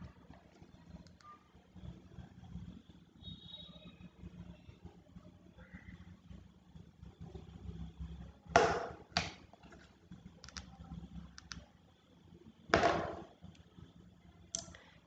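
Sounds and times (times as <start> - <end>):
computer clicks: 11.3 - 11.6.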